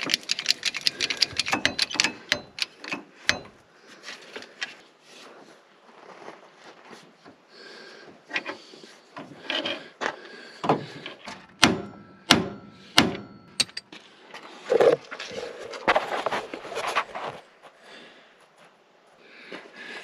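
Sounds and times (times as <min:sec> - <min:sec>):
tool clanks and scraping: 0:00.0 - 0:04.8, 0:09.2 - 0:09.9, 0:10.7 - 0:14.0
hammer striking metal: 0:01.4 - 0:03.6, 0:11.6 - 0:13.9.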